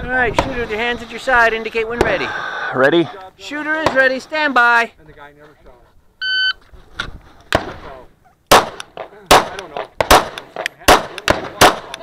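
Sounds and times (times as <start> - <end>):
pistol shots: 8.5 - 12.0.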